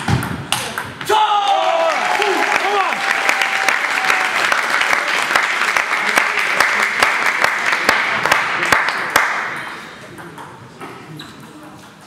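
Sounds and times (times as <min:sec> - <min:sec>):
spectators clapping: 0:01.4 - 0:09.6.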